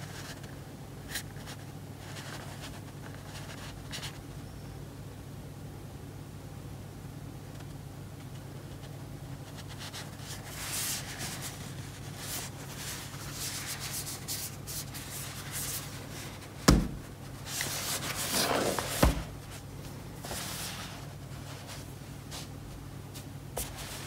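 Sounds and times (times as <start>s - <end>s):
gloved hands rubbing cardboard box: 9.7s - 22.5s.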